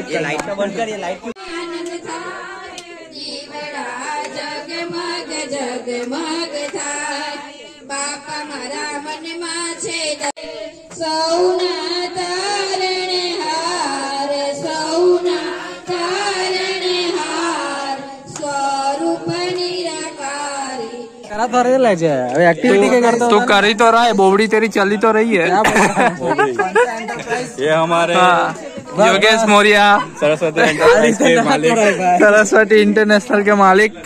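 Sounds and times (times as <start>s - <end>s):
devotional singing with music: 1.3s - 21.3s.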